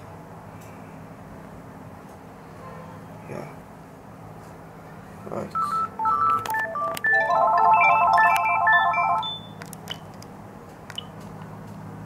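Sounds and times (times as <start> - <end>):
dialing tones: 5.6 - 10.1
cordless phone key beeps: 5.6 - 10.2, 10.9 - 11.2.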